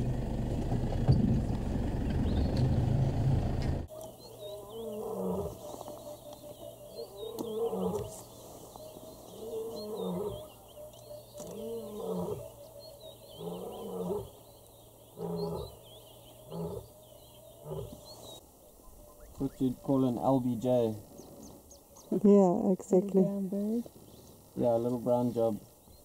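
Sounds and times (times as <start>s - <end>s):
small birds chirping: 1.4s - 2.9s, 3.9s - 26.0s
large animal roaring: 4.6s - 5.7s, 7.0s - 8.4s, 9.3s - 10.5s, 11.4s - 12.5s, 13.3s - 14.4s, 15.2s - 18.1s.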